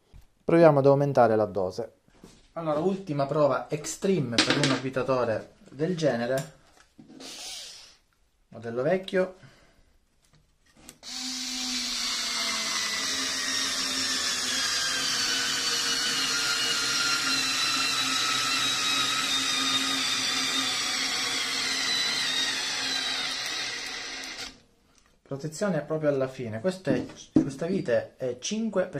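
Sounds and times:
cordless screwdriver whining: 0:07.2 - 0:07.8, 0:11.0 - 0:24.6.

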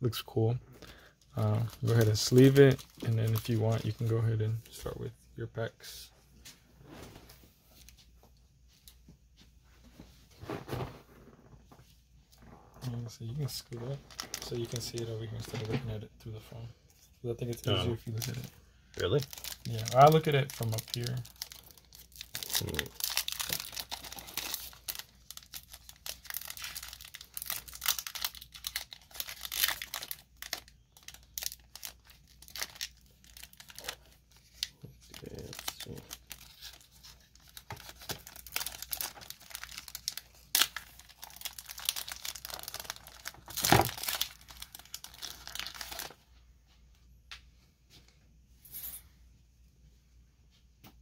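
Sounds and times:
foil wrapper tearing and crinkling: 0:01.6 - 0:03.9, 0:19.1 - 0:46.2.

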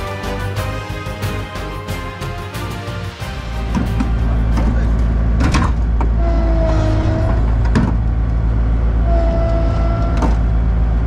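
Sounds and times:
falling whine: 0:02.0 - 0:11.0
diesel machinery engine drone: 0:03.1 - 0:11.0.

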